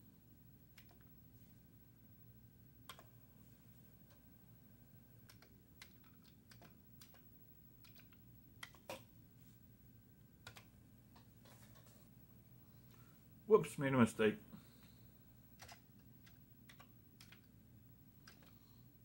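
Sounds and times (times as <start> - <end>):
low steady hum: 0.0 - 19.0
keyboard keys clicking: 0.7 - 1.1, 2.9 - 3.1, 5.2 - 9.0, 10.4 - 10.7, 15.6 - 17.5, 18.2 - 18.6.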